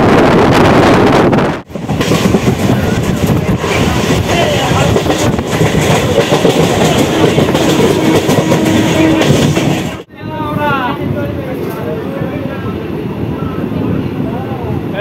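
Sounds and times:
rushing wind: 0:00.0 - 0:15.0
train wheels clattering over rails: 0:01.6 - 0:10.1.

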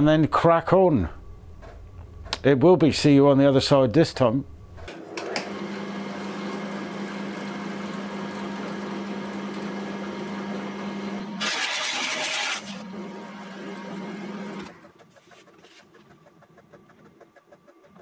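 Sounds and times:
pillar drill motor hum: 0:04.7 - 0:18.0.

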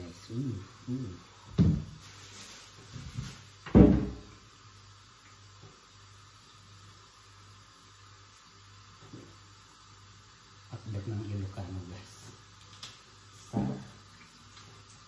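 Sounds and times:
heavy thumps on kitchen counter: 0:01.5 - 0:02.0, 0:03.1 - 0:04.3, 0:13.5 - 0:13.9.

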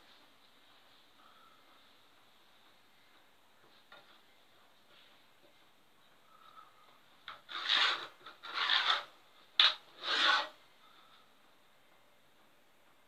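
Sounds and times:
pen scraping on wooden board: 0:07.3 - 0:10.6.

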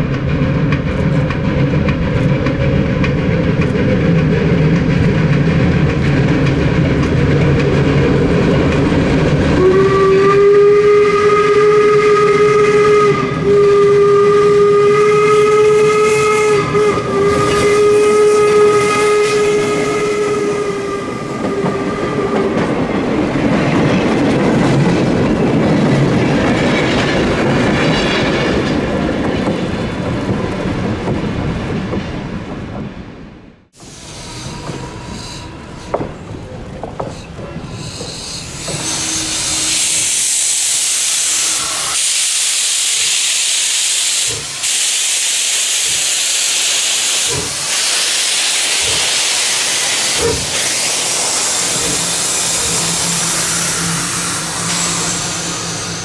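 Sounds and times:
wheels clicking over rail joints: 0:00.0 - 0:09.6
steam locomotive running: 0:00.0 - 0:32.9, 0:33.7 - 0:56.0
train rumbling past: 0:00.0 - 0:56.0
steam whistle blast: 0:09.6 - 0:22.5, 0:38.2 - 0:56.0.

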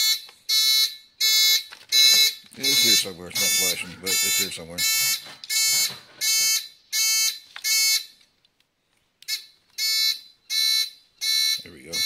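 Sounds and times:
turn-signal buzzer beeping: 0:00.0 - 0:08.0.

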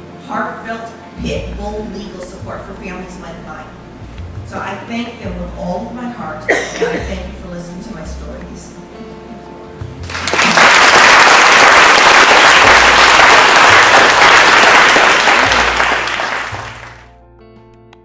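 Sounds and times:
audience applauding: 0:10.0 - 0:17.1.

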